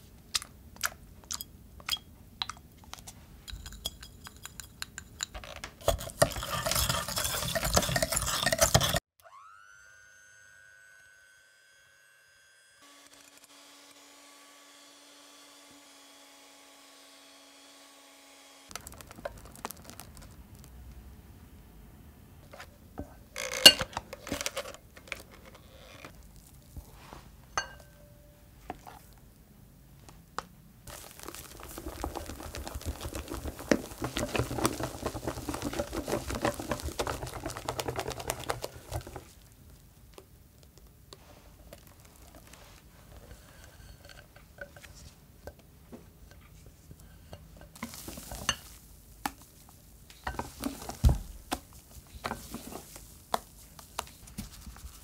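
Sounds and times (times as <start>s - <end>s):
metal beaters clinking against glass: 3.5s - 5.4s
whisk beating in glass bowl: 3.5s - 9.0s, 30.9s - 39.3s
electric hand mixer running: 9.2s - 18.5s.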